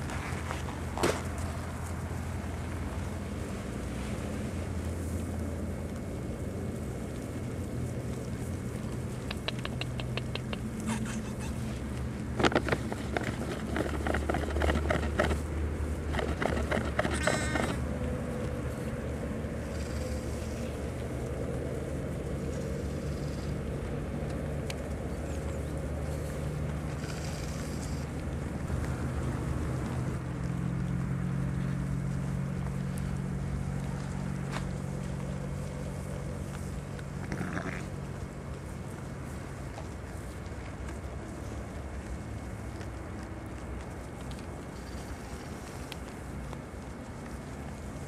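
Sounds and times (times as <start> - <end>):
low steady hum: 0.0 - 48.0
dense rustling and clicking: 5.0 - 21.5
sheep and lambs bleating: 10.8 - 11.8, 37.2 - 38.0.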